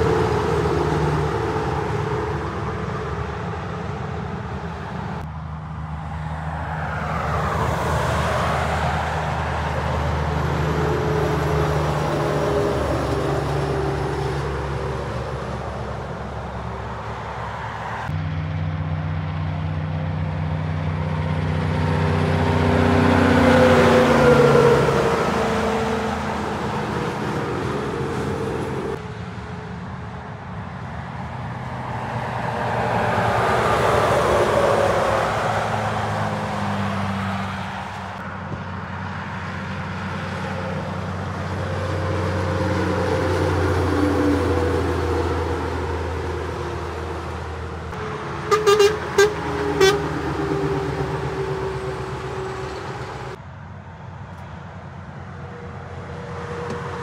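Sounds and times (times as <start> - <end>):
trucks passing on a motorway: 0.0 - 57.0.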